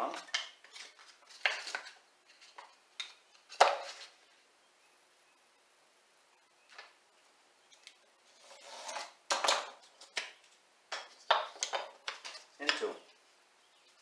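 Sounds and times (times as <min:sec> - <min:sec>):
knife scraping through wood: 0:08.3 - 0:09.2.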